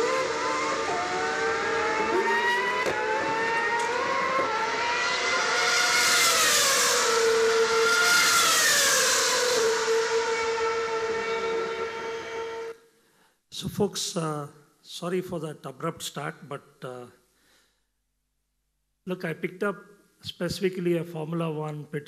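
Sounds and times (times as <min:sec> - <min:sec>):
racing car engine over loudspeakers: 0:00.0 - 0:12.7.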